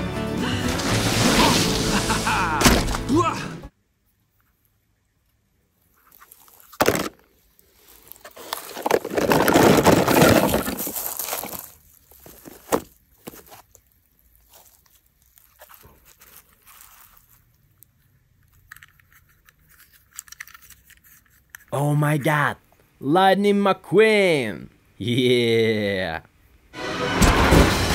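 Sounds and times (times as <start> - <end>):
plastic toys rustling and clattering: 5.8 - 21.8.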